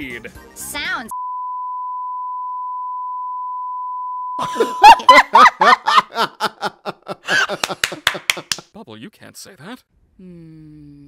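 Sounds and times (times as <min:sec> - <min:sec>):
censor bleep tone: 0:01.1 - 0:04.4
people laughing: 0:04.4 - 0:08.6
people talking: 0:08.8 - 0:11.0.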